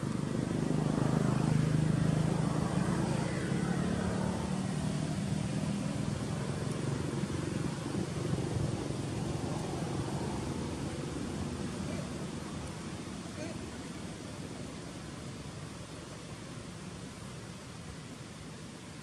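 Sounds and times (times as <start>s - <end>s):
low drone: 0.0s - 14.8s
outdoor background noise: 0.0s - 19.0s.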